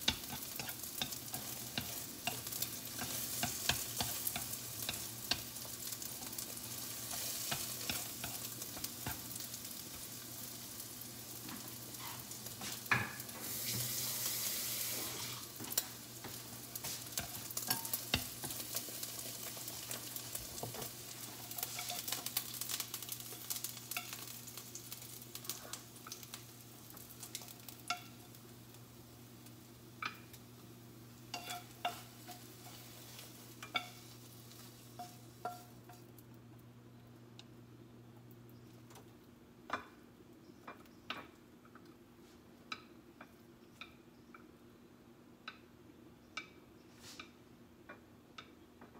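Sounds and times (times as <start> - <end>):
food sizzling in a frying pan: 0.0 - 37.3
chopsticks scraping a pan: 0.1 - 9.4, 12.0 - 12.8, 15.0 - 24.3, 31.3 - 36.0.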